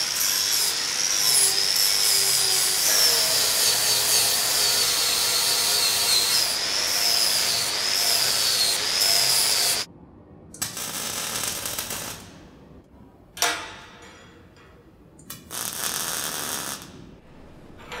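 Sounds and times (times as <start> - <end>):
arc welding hiss and crackle: 0.0 - 9.9, 10.6 - 12.4, 15.3 - 17.0.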